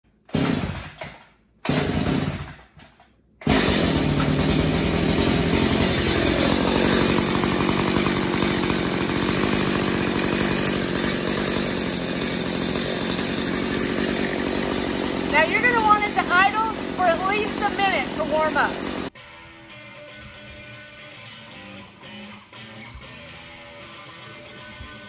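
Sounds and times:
chainsaw starting and idling: 0.2 - 19.2.

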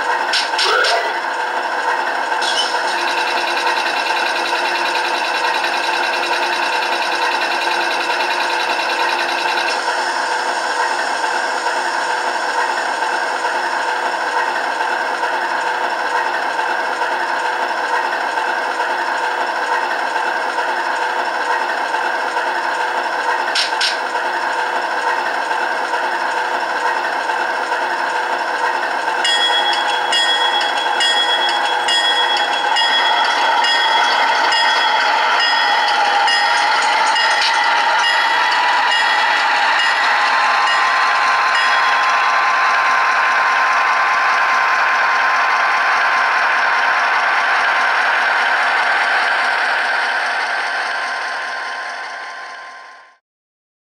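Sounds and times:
steady high tone: 0.0 - 1.4, 2.4 - 12.4, 29.2 - 53.2
diesel engine idling through speaker: 0.0 - 15.6.

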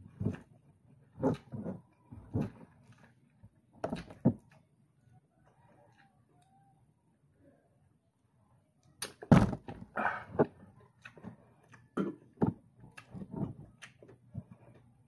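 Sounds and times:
eating with the hands: 10.0 - 15.0.

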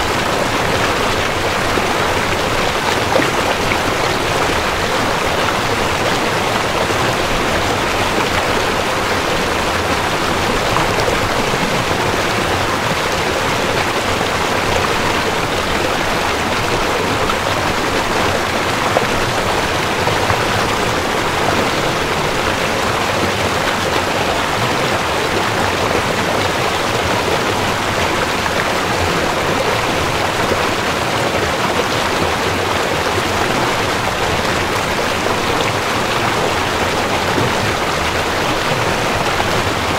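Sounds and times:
river flowing: 0.0 - 39.9.

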